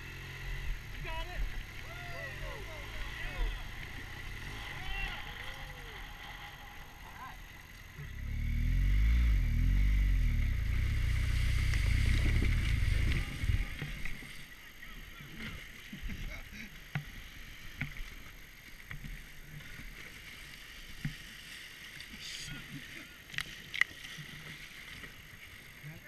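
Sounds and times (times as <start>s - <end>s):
motorcycle engine revving: 0.0s - 14.5s
river water rushing: 0.0s - 26.0s
knocks and splashes: 10.7s - 14.6s.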